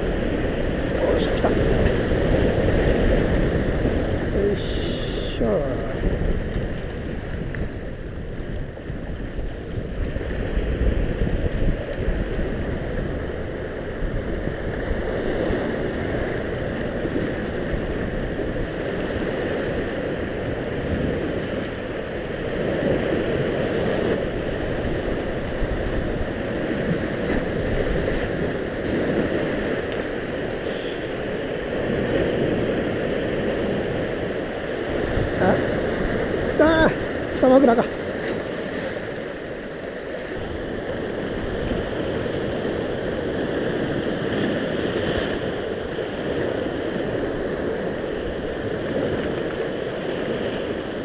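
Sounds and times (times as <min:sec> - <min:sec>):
surf breaking on rocks: 0:00.0 - 0:51.0
wind buffeting microphone: 0:00.0 - 0:51.0.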